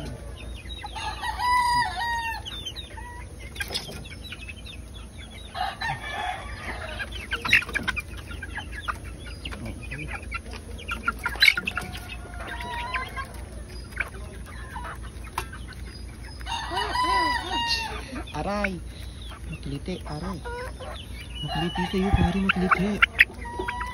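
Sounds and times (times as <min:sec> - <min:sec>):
hens clucking: 0:00.0 - 0:23.9.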